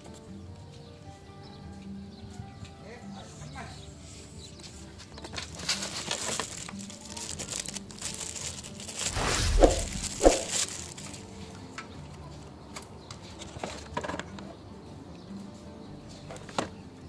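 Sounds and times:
plastic bag crinkling: 0:06.0 - 0:09.2, 0:10.3 - 0:11.2.

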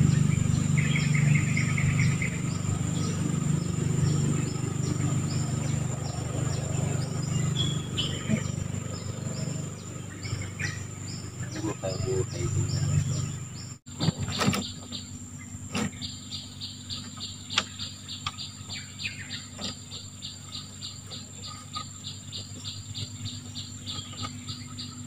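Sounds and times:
high-pitched insect drone: 0:00.0 - 0:13.7
insects chirping: 0:00.0 - 0:25.0.

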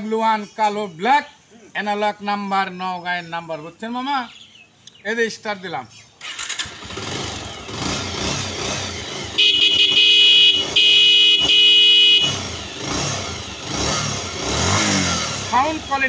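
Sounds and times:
motorcycle engine running: 0:06.3 - 0:16.0
electric horn blasts: 0:09.2 - 0:13.0.

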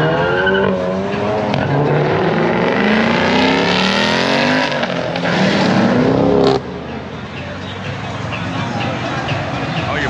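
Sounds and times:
car engine revving under throttle: 0:00.8 - 0:06.6.

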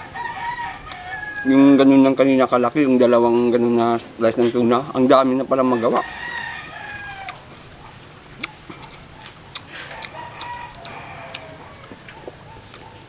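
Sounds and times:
rooster crowing: 0:00.0 - 0:01.8, 0:05.6 - 0:07.6, 0:09.8 - 0:12.5
chickens calling: 0:05.5 - 0:13.0
clicks and smacks of eating: 0:08.4 - 0:13.0.

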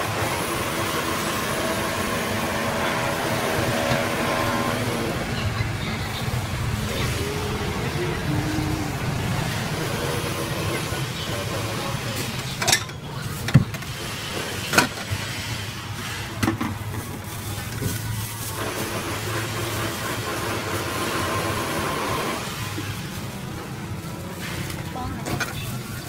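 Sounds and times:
motorbikes and cars passing: 0:00.0 - 0:13.2
faint background voices: 0:00.7 - 0:26.0.

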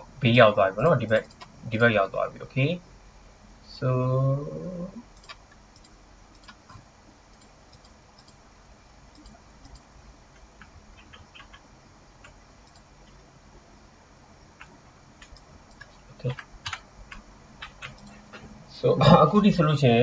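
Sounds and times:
room hiss: 0:00.0 - 0:20.0
keyboard and mouse clicks: 0:01.1 - 0:01.5, 0:05.2 - 0:08.4, 0:09.1 - 0:13.2, 0:14.6 - 0:18.5.

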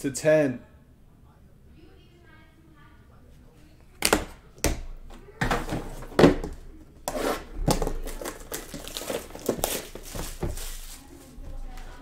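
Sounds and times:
plastic wrapping crinkling: 0:07.7 - 0:12.0.

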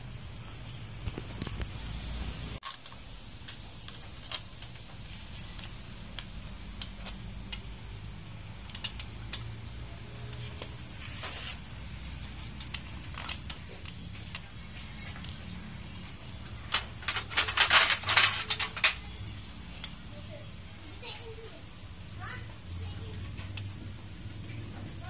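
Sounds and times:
steady low hum: 0:00.0 - 0:25.0
wrench clicking on metal bolts: 0:05.4 - 0:07.7, 0:08.6 - 0:09.6.

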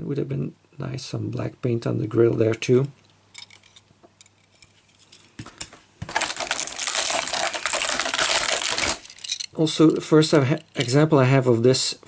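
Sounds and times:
plastic blister tray crackling: 0:06.0 - 0:09.5.

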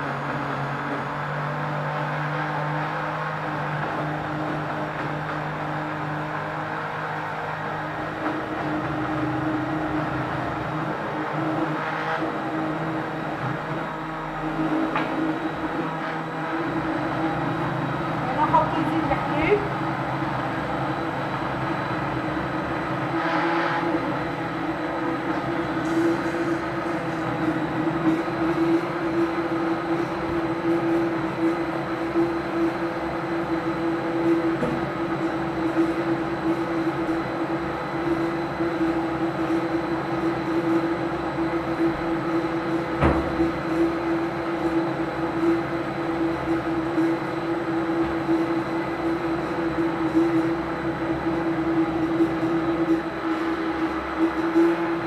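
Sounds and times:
appliance motor humming: 0:00.0 - 0:55.0.

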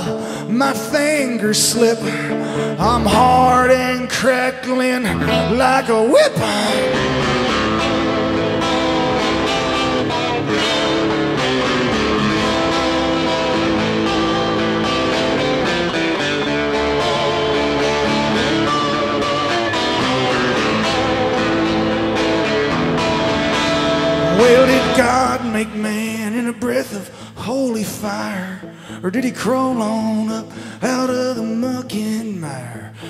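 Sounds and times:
folk-rock guitar playing: 0:00.0 - 0:33.0.

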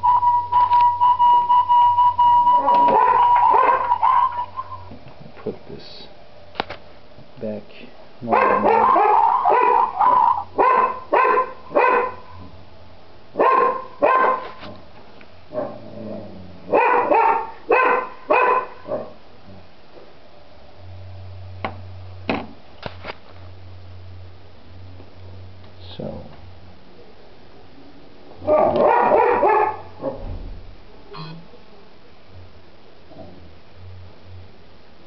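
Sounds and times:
dog barking: 0:02.8 - 0:04.9, 0:08.3 - 0:12.4, 0:13.4 - 0:14.6, 0:15.5 - 0:15.8, 0:16.7 - 0:19.2, 0:28.4 - 0:30.2.

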